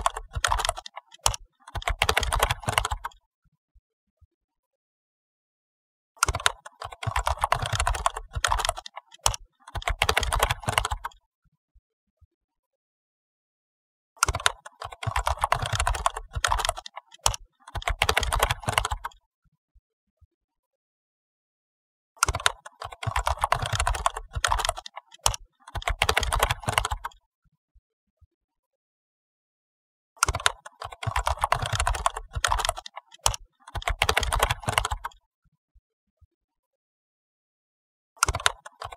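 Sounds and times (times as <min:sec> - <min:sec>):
keyboard typing clicks: 0:00.0 - 0:03.2, 0:06.2 - 0:11.2, 0:14.2 - 0:19.2, 0:22.2 - 0:27.2, 0:30.2 - 0:35.2, 0:38.2 - 0:38.9.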